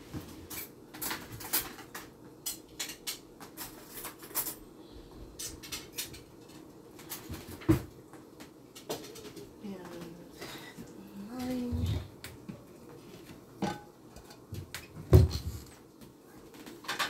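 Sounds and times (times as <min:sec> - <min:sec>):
dishes and cutlery clinking: 0:00.5 - 0:04.6, 0:13.6 - 0:14.9.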